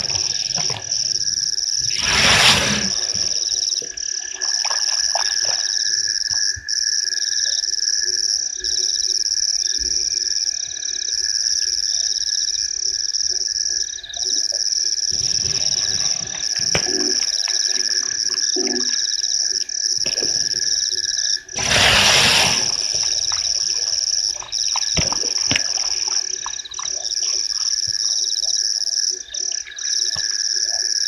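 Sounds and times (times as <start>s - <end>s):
rapid pulsed frog calls: 0.0s - 31.0s
shrill insect chirring: 20.7s - 31.0s.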